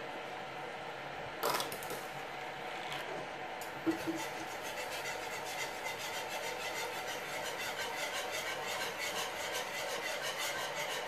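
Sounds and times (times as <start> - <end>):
whisk scraping in a pan: 3.8 - 11.0.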